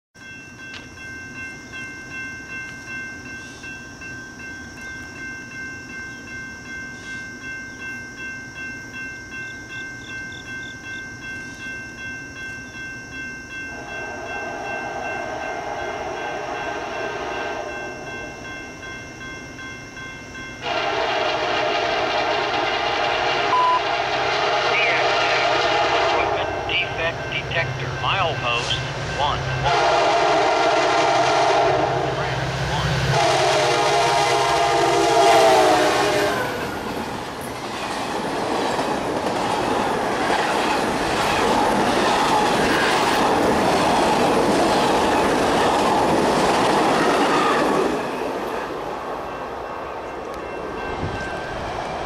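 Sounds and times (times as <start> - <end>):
steady rhythmic ringing: 0.2 - 21.7, 24.7 - 32.8
locomotive air horn: 13.7 - 17.7, 20.6 - 26.7, 29.2 - 36.6.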